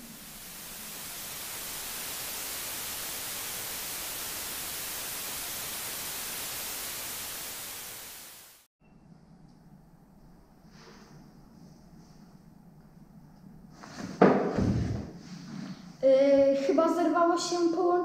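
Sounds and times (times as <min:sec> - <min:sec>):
television static hiss: 0:00.0 - 0:08.7.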